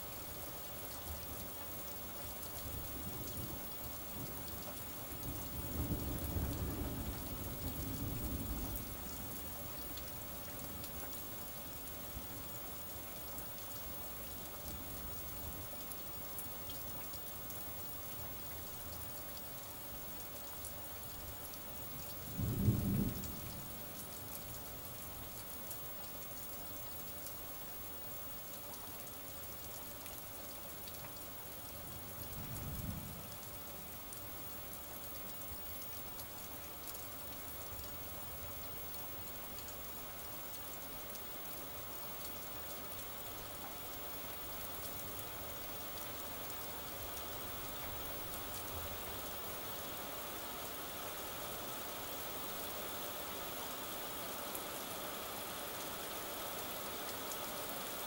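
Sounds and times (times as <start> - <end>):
steady rain: 0.0 - 58.0
rumble of thunder: 5.1 - 9.6, 22.2 - 24.0, 32.0 - 33.5
crack of thunder: 22.3 - 23.6.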